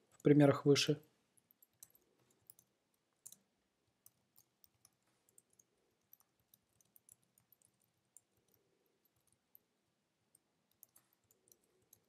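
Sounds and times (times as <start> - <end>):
keyboard keys typing: 1.4 - 9.7, 10.4 - 12.0.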